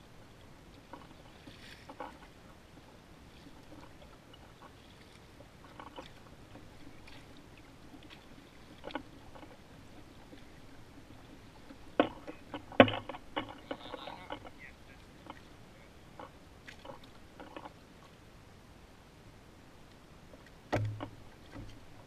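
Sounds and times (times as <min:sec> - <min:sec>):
paddle knocking on kayak hull: 0:11.7 - 0:14.6, 0:20.7 - 0:21.8.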